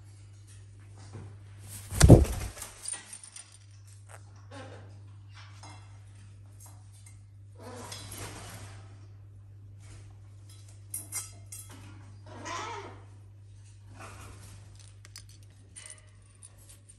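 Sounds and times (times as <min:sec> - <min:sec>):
faint low hum: 0:00.0 - 0:16.9
rustling and scuffling: 0:01.0 - 0:03.6.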